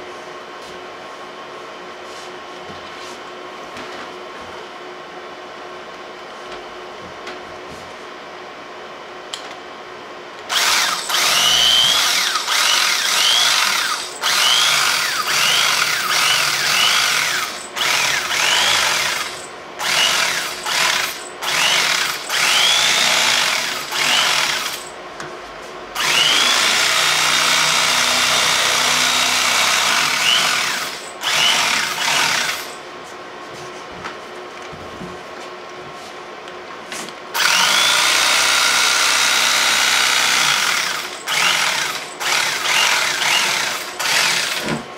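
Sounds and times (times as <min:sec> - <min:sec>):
electric knife motor whining: 0:10.5 - 0:24.9, 0:26.0 - 0:32.8.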